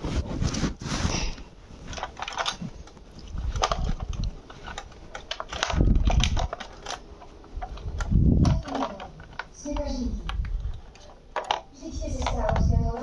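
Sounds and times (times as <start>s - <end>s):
small plastic clicks and rattles: 1.9s - 13.0s.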